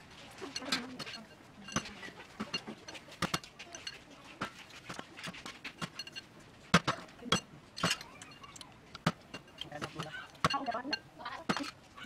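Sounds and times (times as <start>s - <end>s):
spoons clinking on bowl and tray: 0.4s - 5.0s, 5.8s - 6.3s, 7.3s - 8.6s, 9.2s - 11.9s.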